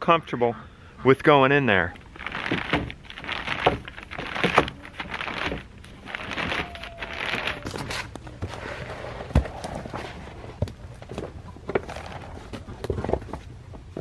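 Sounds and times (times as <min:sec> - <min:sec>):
plastic sheeting crinkling: 0:02.0 - 0:10.2.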